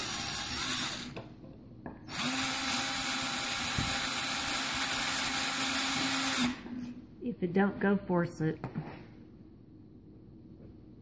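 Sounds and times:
cordless drill grinding metal: 0:00.0 - 0:01.2, 0:02.1 - 0:06.6.

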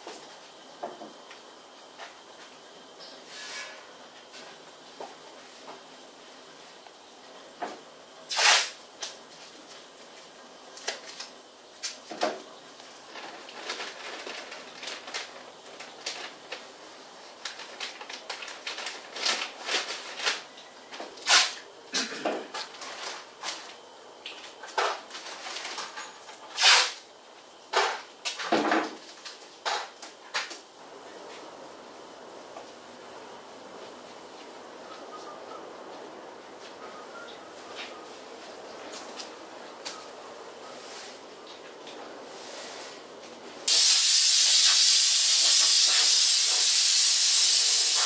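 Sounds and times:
plastic sheet and tape rustling: 0:12.8 - 0:21.6, 0:22.6 - 0:23.8, 0:45.4 - 0:46.7.

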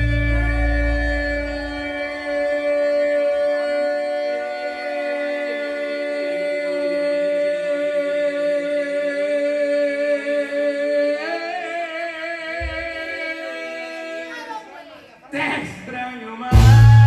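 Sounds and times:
music with long held notes: 0:00.0 - 0:05.3, 0:16.5 - 0:17.0.

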